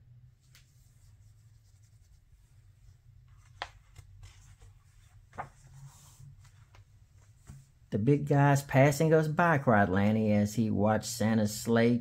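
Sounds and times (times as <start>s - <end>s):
low steady hum: 0.0s - 12.0s
book page turning: 3.2s - 7.7s.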